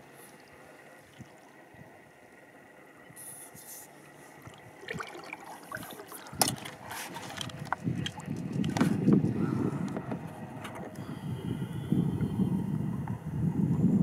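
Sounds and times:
water drips and splashes: 0.0s - 1.7s, 4.4s - 8.8s
water trickling and lapping: 0.0s - 11.2s.

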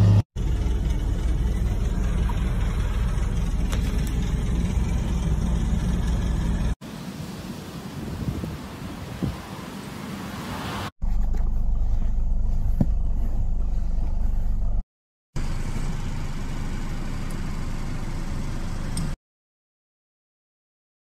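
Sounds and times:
wind noise on microphone: 8.0s - 9.6s.

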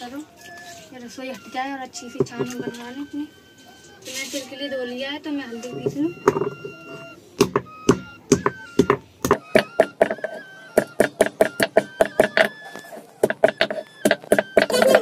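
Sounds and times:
stone pestle pounding on grinding stone: 7.4s - 10.3s, 10.9s - 12.5s, 13.2s - 15.0s.

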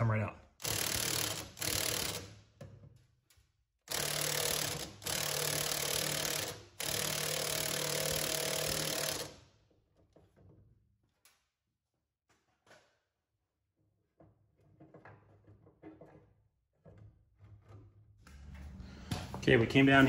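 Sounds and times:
impact wrench hammering: 0.6s - 2.7s, 3.9s - 9.4s.

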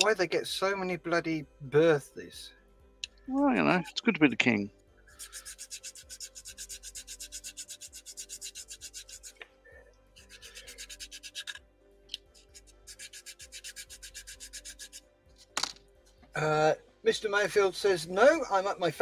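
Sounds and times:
sanding plastic part: 5.2s - 9.4s, 10.2s - 11.6s, 12.4s - 15.0s.

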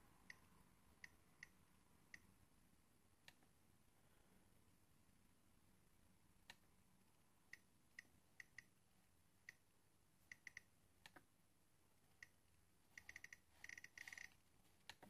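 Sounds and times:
thermostat dial ticking: 0.2s - 2.4s, 7.5s - 8.8s, 10.3s - 11.3s, 12.1s - 15.0s.

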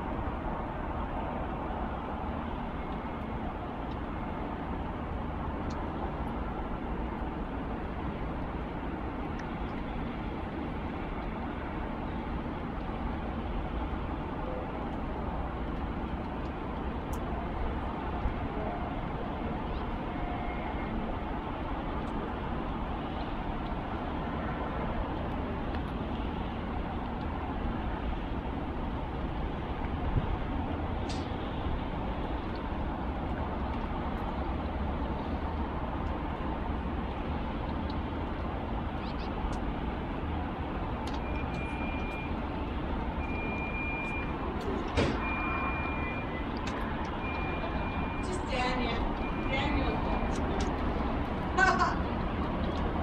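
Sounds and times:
distant city traffic: 0.0s - 53.0s
storm wind: 0.0s - 53.0s
high electronic beep: 45.2s - 46.5s.

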